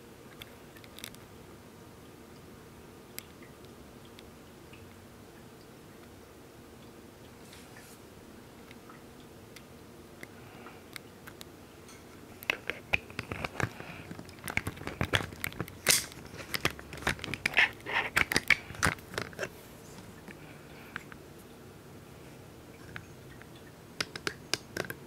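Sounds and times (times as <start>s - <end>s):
faint background hum: 0.0s - 25.0s
crackling handling noise: 0.3s - 1.3s, 10.2s - 21.6s, 22.7s - 25.0s.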